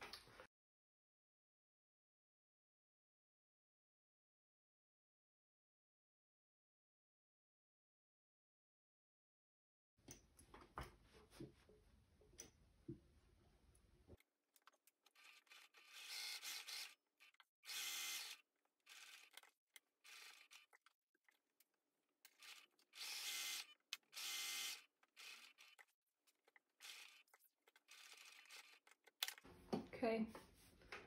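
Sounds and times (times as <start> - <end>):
sewing machine stitching: 15.0 - 20.9, 22.3 - 25.9, 26.8 - 29.4.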